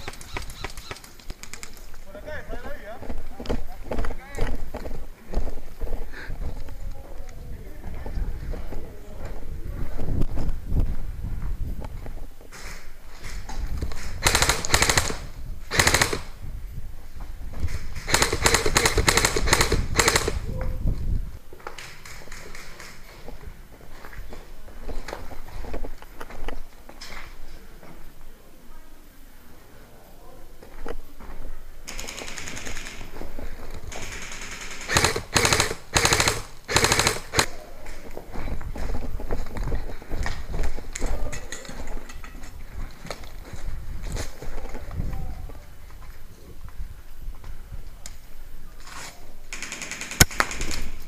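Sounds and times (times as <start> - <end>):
airsoft rifle bursts: 14.2 - 16.4, 18.0 - 20.4, 31.9 - 33.1, 33.9 - 37.6, 48.9 - 51.0.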